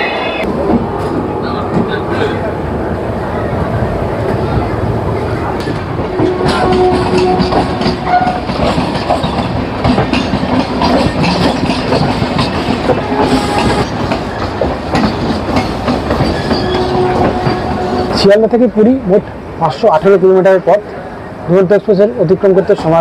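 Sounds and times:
train wheels clattering: 5.6s - 18.5s.

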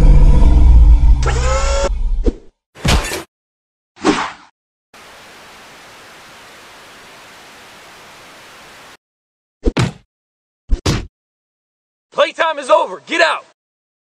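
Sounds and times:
screen static hiss: 5.0s - 9.0s.

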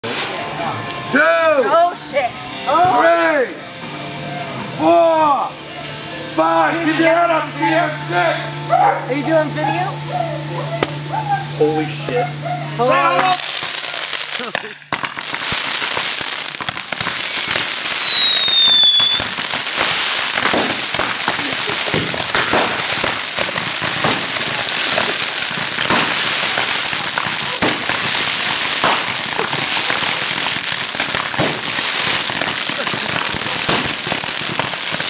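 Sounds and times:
roman candles popping and crackling: 13.2s - 35.0s
firework whistle falling in pitch: 17.1s - 19.3s.

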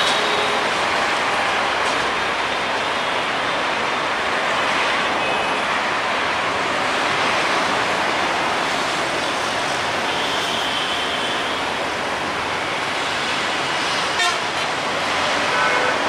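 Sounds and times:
train wheels on rails: 0.0s - 16.0s.

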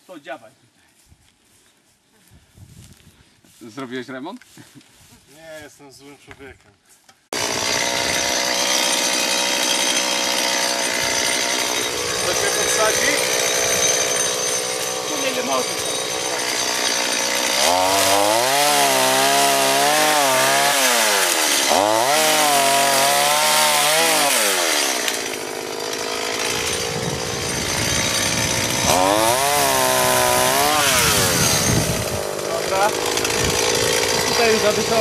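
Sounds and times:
chainsaw cutting branch: 7.3s - 35.0s.

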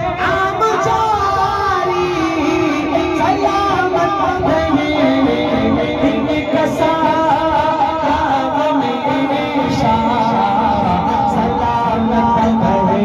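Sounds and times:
man singing devotional song: 0.0s - 13.0s.

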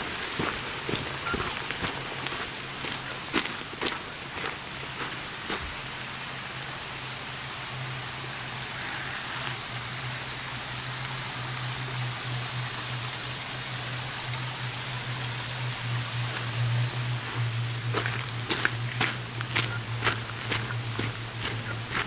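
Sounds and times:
footstep on trail: 0.0s - 5.8s, 16.1s - 22.0s
mountain stream rushing: 0.0s - 22.0s
steady low hum: 0.0s - 22.0s.

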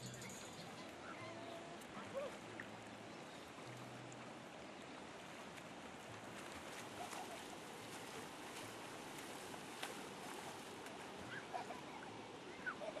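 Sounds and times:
river water: 0.0s - 13.0s
people splashing while swimming: 6.4s - 12.0s.

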